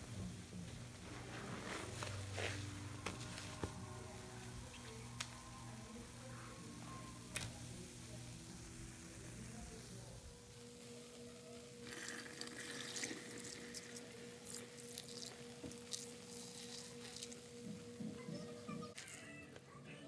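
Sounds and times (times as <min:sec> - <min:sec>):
faint steady tone: 0:02.6 - 0:11.9.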